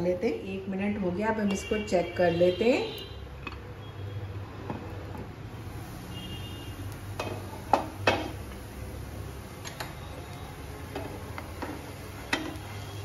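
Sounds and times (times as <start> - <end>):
utensils clinking on frying pan: 7.2 - 8.4, 10.9 - 12.8.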